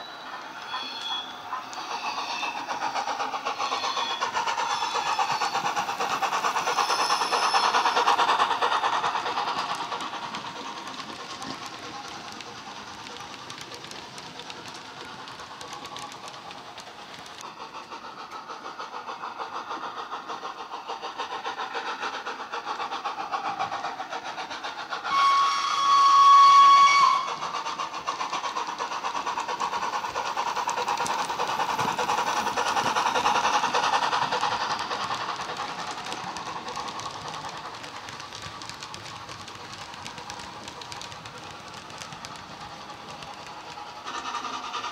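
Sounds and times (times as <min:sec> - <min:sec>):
train whistle: 0:00.0 - 0:02.6, 0:06.8 - 0:08.0, 0:25.0 - 0:27.5
model steam locomotive chuffing: 0:00.0 - 0:44.9.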